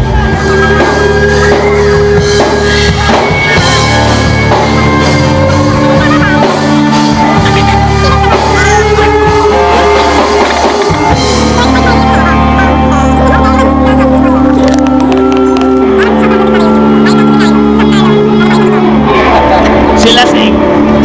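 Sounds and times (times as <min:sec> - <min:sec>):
loud rock music with singing: 0:00.0 - 0:21.0.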